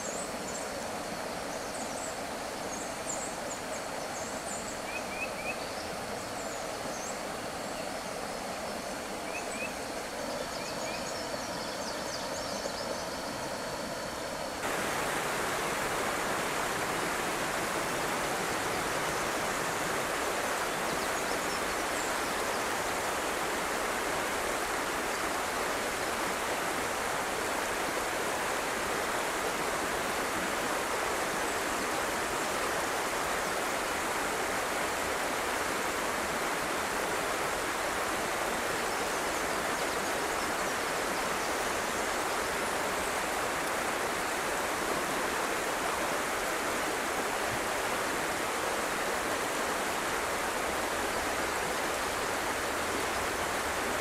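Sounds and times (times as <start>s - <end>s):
water rushing over rocks: 14.6s - 54.0s.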